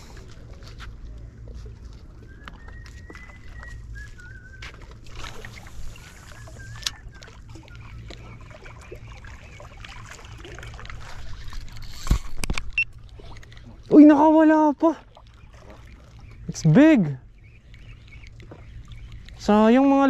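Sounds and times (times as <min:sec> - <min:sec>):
water lapping against seawall: 0:00.0 - 0:20.0
bird chirps: 0:15.4 - 0:19.8.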